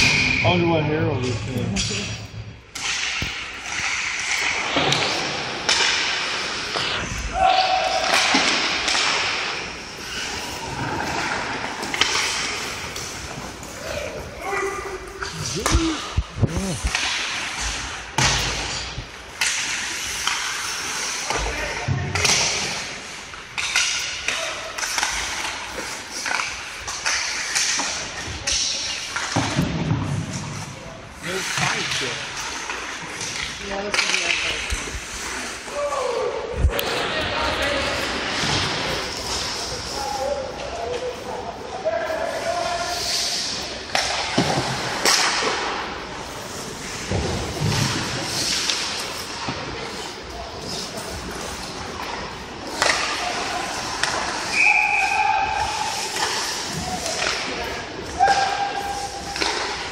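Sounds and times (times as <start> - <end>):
hockey sticks and puck clacking: 0.0 - 59.9
stick hitting puck: 2.7 - 6.9, 7.5 - 13.5, 32.7 - 34.9, 43.9 - 45.8, 51.2 - 59.9
skate blades scraping ice: 2.7 - 21.6, 22.2 - 29.4, 30.1 - 36.2, 36.8 - 59.9
skate blades hissing on ice: 9.7 - 14.6, 19.5 - 21.3, 42.8 - 43.8, 46.1 - 52.0, 52.6 - 57.6
puck thudding against boards: 43.9 - 45.8, 46.9 - 49.9.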